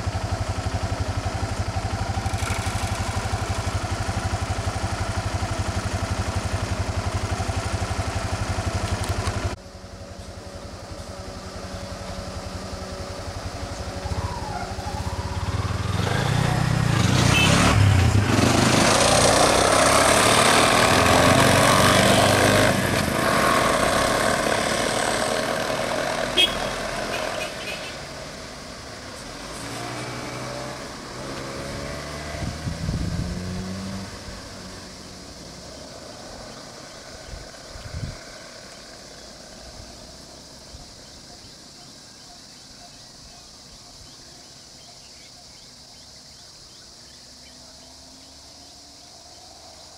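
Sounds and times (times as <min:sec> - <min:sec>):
vehicle engine idling: 0:00.0 - 0:18.4
bus engine pulling away: 0:00.0 - 0:40.7.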